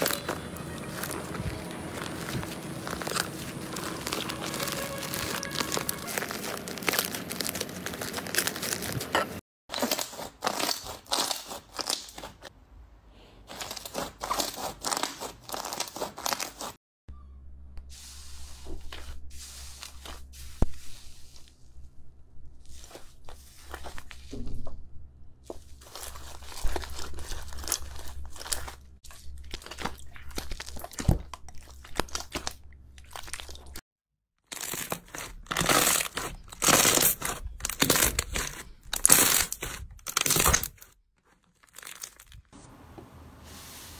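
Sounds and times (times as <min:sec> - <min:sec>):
hands squeezing sticky slime: 0:00.0 - 0:09.0, 0:25.8 - 0:33.8
slime crackling and tearing: 0:00.0 - 0:09.1, 0:09.7 - 0:12.4, 0:13.5 - 0:16.7, 0:25.8 - 0:33.8, 0:34.5 - 0:42.5.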